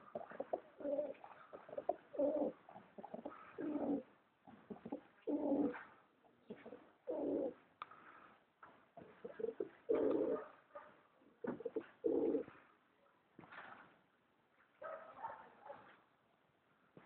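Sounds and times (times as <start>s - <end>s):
pigeons cooing: 0.0s - 7.6s, 9.0s - 10.5s, 11.4s - 12.6s.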